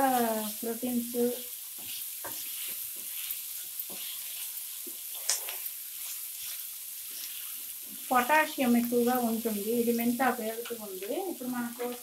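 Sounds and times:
spatula scraping a pan: 0.0s - 8.3s
vegetables sizzling in oil: 0.0s - 12.0s.

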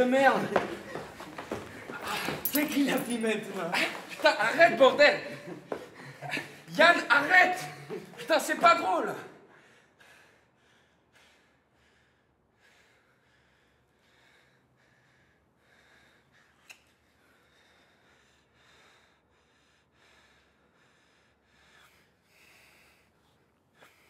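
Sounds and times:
faint breathing: 9.5s - 24.0s.

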